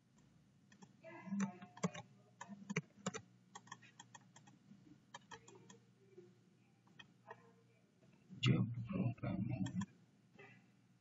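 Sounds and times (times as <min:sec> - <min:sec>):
keyboard typing: 0:00.7 - 0:05.8, 0:09.6 - 0:09.9.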